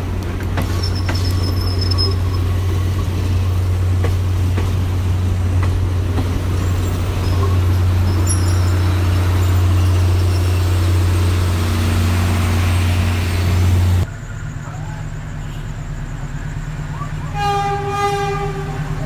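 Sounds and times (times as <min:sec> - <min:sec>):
locomotive horn blast: 0:17.3 - 0:19.0.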